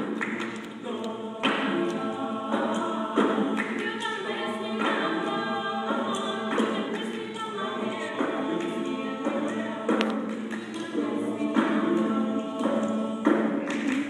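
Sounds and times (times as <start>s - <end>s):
choir singing in harmony: 0.0s - 14.0s.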